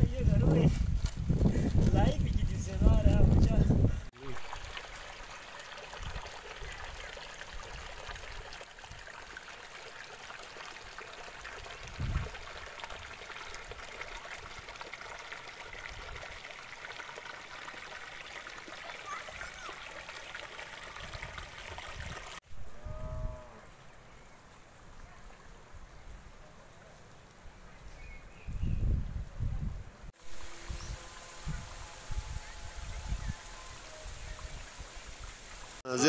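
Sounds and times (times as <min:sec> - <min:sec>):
water rushing over stones: 0:04.2 - 0:22.4.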